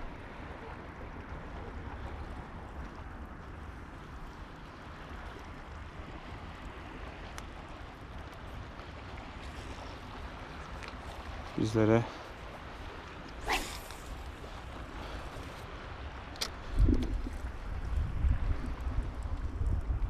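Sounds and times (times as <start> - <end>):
sea water lapping at shore: 0.0 - 20.0
wind buffeting microphone: 12.5 - 20.0.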